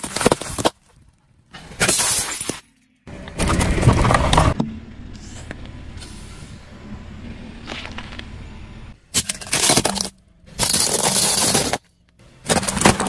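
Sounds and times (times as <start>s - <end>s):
tyre crushing crisp packets: 0.0s - 1.2s, 9.1s - 13.0s.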